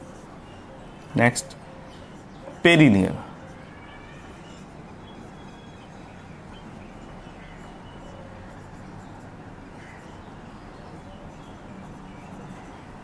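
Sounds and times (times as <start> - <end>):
marker squeaks: 0.0 - 6.0
marker pen on whiteboard: 0.0 - 13.0.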